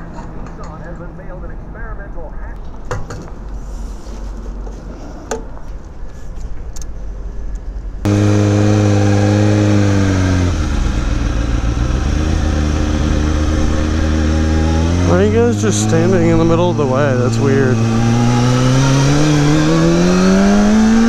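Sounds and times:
motorcycle engine idling: 8.1s - 17.0s.

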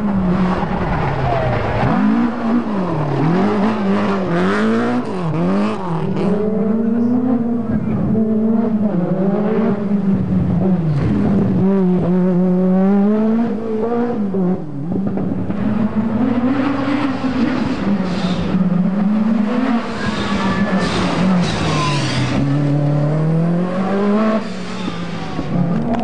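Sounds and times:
rally car engine revving: 0.0s - 26.0s.

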